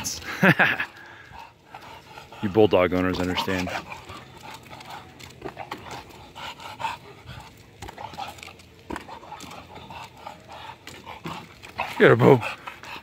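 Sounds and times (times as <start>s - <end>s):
dog panting hard: 0.0s - 13.0s.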